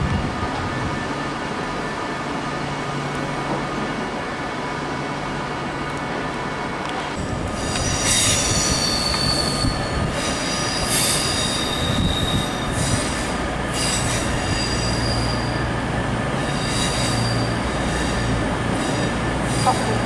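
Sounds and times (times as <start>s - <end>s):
low hum of train: 0.0s - 20.0s
train wheels squealing on rails: 7.2s - 20.0s.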